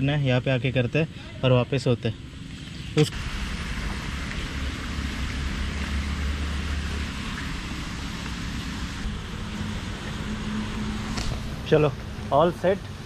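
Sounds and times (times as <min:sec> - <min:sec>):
deep engine rumble: 0:02.1 - 0:13.0
car engine idling: 0:03.1 - 0:13.0.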